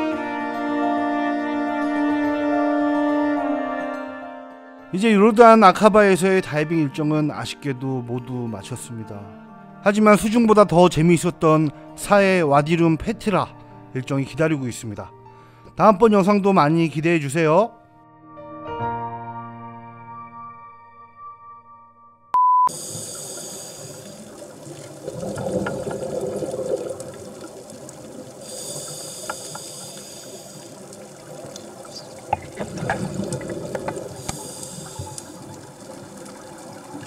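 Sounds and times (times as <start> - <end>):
soft piano music: 0.0 - 22.2
loud single-pitch beep: 22.4 - 22.8
diver breathing through regulator: 22.7 - 24.3, 28.3 - 31.0, 33.9 - 35.4.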